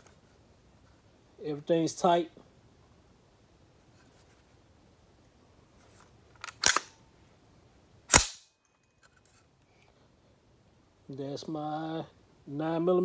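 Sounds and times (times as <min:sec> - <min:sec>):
pistol action metallic clacks: 0:06.4 - 0:07.0, 0:08.1 - 0:08.8.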